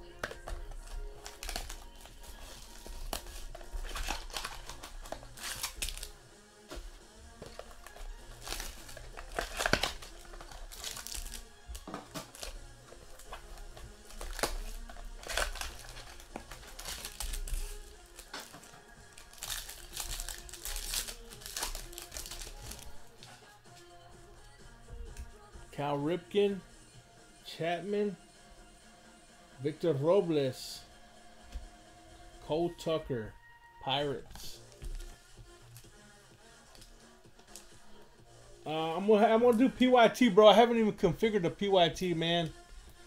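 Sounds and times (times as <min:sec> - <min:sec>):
foil wrappers tearing and crinkling: 0:00.3 - 0:06.2, 0:07.5 - 0:22.9.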